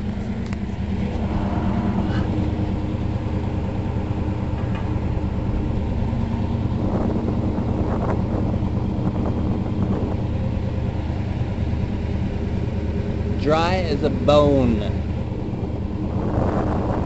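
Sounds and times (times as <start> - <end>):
engine idling: 0.0 - 17.0.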